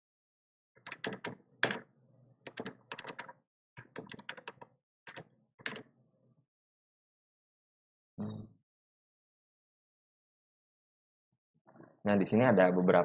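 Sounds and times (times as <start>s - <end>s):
typing on keyboard: 0.8s - 1.8s, 2.5s - 5.8s.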